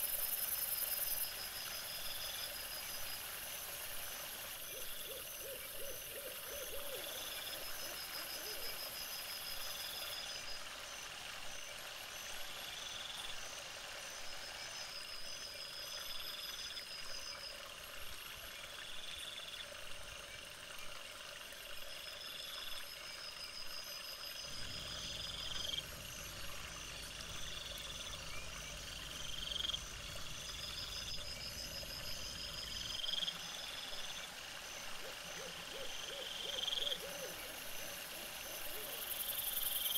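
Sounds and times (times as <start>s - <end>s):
trilled animal calls: 34.9s - 39.0s.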